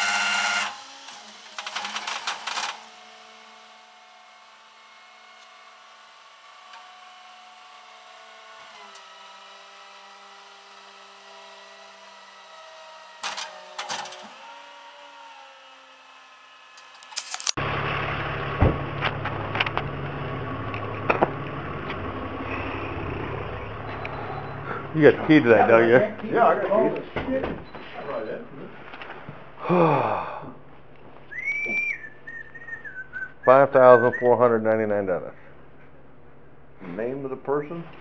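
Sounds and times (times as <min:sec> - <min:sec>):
truck engine humming: 0:17.6 - 0:26.4.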